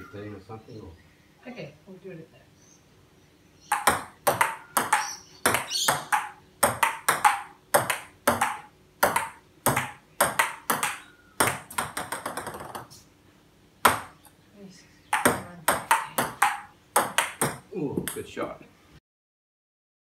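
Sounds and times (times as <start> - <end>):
ball bouncing taps: 3.7 - 13.0, 13.8 - 14.2, 15.1 - 18.3
ping pong ball clicking off paddles: 3.7 - 13.0, 13.8 - 14.2, 15.1 - 18.3.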